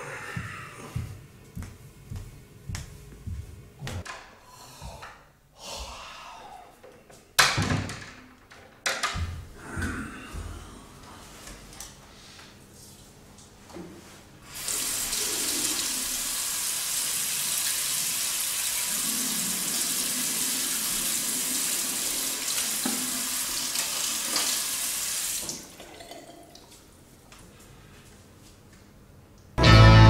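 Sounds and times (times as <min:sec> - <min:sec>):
tap water running into basin: 0:14.5 - 0:26.8.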